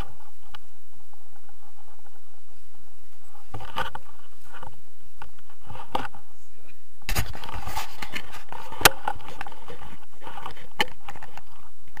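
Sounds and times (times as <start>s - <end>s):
camera handling rustle: 3.2s - 6.2s, 7.1s - 11.7s.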